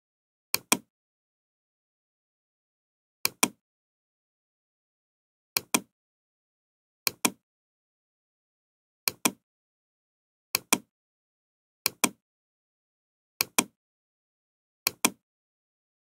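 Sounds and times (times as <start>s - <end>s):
short sharp clicks in pairs: 13.4s - 13.8s, 14.9s - 15.2s.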